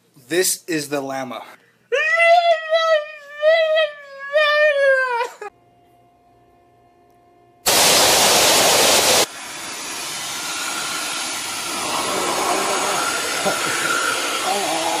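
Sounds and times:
vacuum cleaner loud hiss: 7.7s - 15.0s
vacuum cleaner rushing noise: 7.7s - 15.0s
wavering voice-like sounds: 11.8s - 13.7s, 14.4s - 15.0s.

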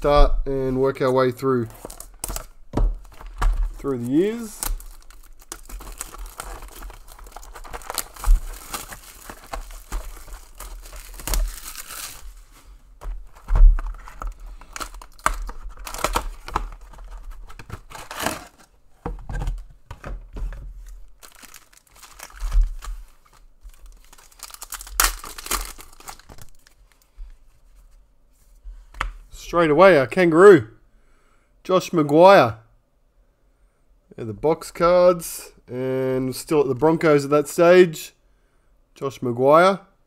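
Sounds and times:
plastic wrapping crinkling and tearing: 1.8s - 18.7s, 20.8s - 27.1s.

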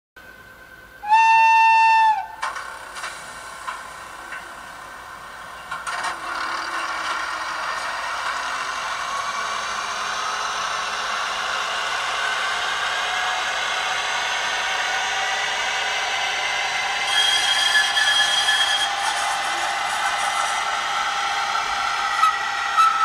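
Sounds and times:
model train whirring: 1.0s - 23.0s
model train clicks and clatter: 2.4s - 4.6s, 5.6s - 8.7s.

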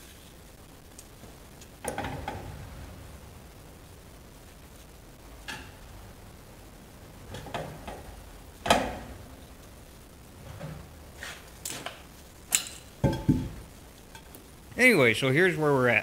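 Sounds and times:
metal knocks and clanks: 12.6s - 13.6s.

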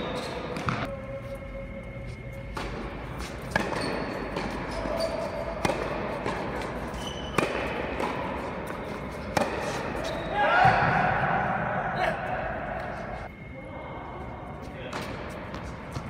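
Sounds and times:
tennis ball bouncing on hard court: 3.4s - 9.9s
tennis racket strikes: 5.6s - 9.9s.

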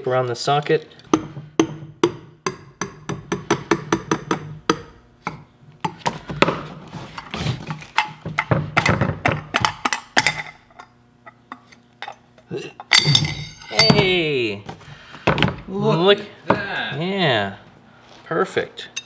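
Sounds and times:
sharp metal knocks: 1.1s - 6.0s.

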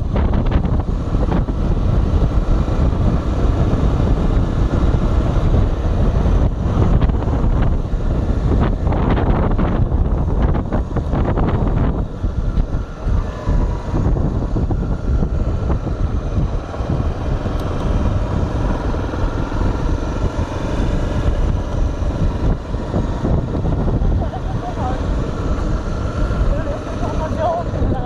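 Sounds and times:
motorcycle engine running: 0.0s - 28.0s
wind buffeting microphone: 0.0s - 28.0s.

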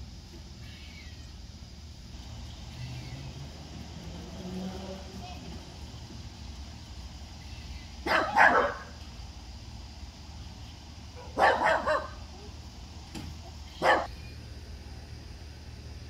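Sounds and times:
dog barking: 8.0s - 9.0s, 11.2s - 12.2s, 13.8s - 14.1s.

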